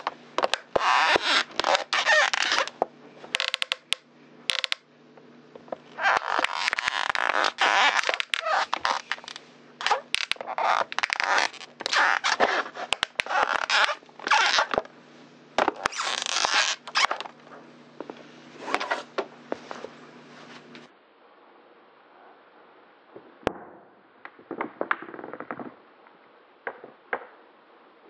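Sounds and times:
plastic bottle crackling under boot: 0.0s - 4.8s, 5.7s - 14.9s, 15.6s - 17.4s.

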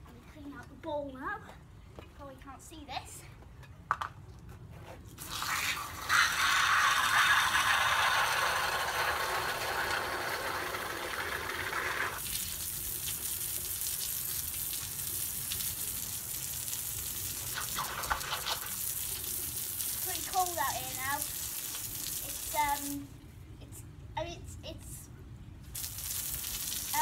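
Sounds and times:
garden hose spraying water: 5.1s - 23.1s, 25.6s - 27.0s.

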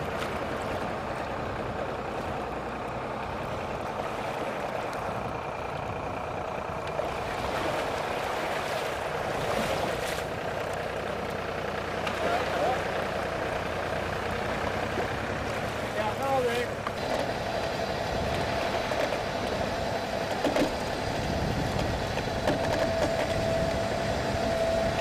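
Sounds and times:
shallow water washing around hull: 0.0s - 25.0s
vehicle engine running: 0.0s - 25.0s.

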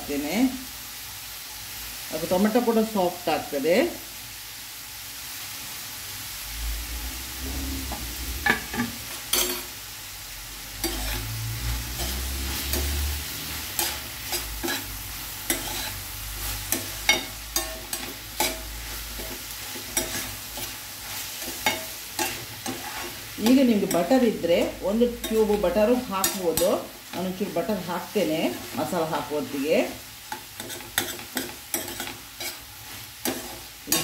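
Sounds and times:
vegetables sizzling in a pan: 0.0s - 34.0s
spatula scraping the pan: 10.8s - 24.3s, 30.2s - 34.0s.

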